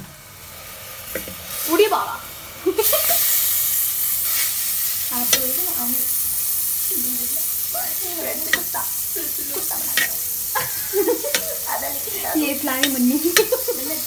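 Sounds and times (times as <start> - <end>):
butter sizzling in pot: 0.1 - 14.0
spoon scraping pot: 12.8 - 14.0.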